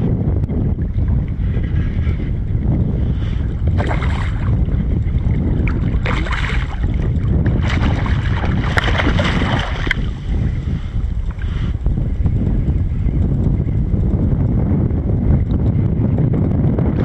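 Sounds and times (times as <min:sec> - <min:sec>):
wind buffeting microphone: 0:00.0 - 0:17.0
waves slapping against hull: 0:02.9 - 0:14.2.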